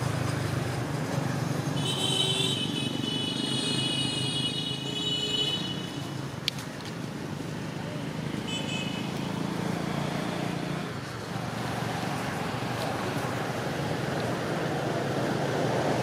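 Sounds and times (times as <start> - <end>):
rushing outdoor background noise: 0.0 - 16.0.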